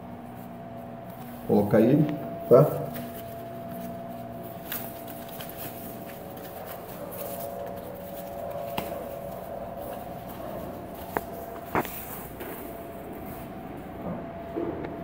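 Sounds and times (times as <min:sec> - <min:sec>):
steady faint hum: 0:00.0 - 0:15.0
rubber gasket rustling: 0:02.9 - 0:13.6.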